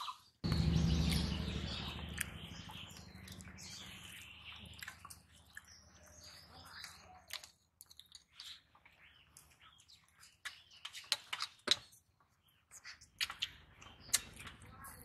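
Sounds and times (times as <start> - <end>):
birds chirping: 0.0 - 11.3, 12.3 - 15.0
low rumble: 0.4 - 4.4.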